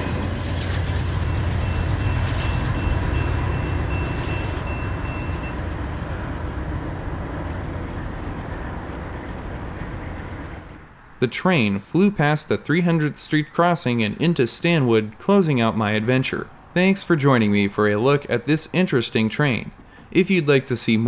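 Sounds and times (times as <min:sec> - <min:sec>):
train wheels rumbling on rail: 0:00.0 - 0:10.9.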